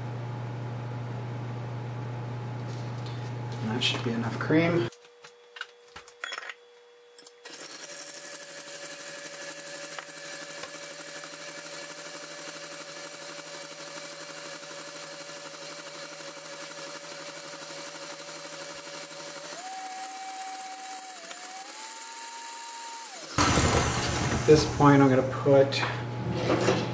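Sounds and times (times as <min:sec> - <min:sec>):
stand mixer motor whining: 0:07.4 - 0:24.8.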